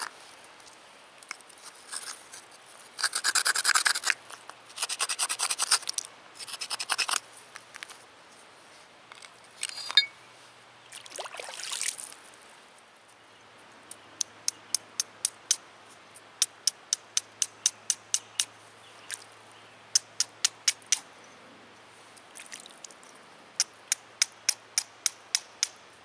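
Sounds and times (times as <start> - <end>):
stone scraping on stone: 3.0 - 4.2.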